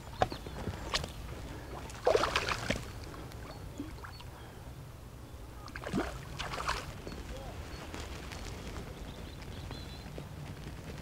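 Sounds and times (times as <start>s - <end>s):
fish splashing in water: 1.8s - 3.0s, 5.7s - 7.0s.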